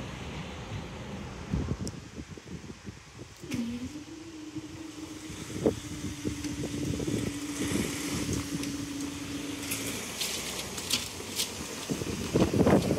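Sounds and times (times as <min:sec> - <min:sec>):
barrier mechanism humming: 0:03.4 - 0:12.9
car driving over crossing: 0:03.4 - 0:12.9.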